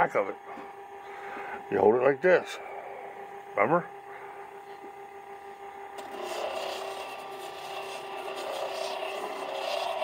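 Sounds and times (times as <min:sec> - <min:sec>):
motor hum: 0:00.0 - 0:10.0
stone grinding on spinning disc: 0:06.0 - 0:10.0.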